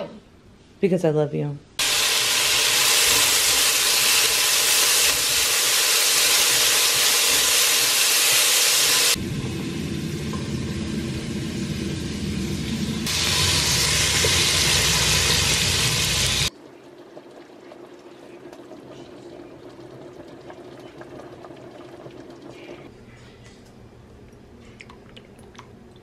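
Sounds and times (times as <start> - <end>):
food sizzling in a pot: 1.8 - 16.5
broth simmering: 1.8 - 22.9.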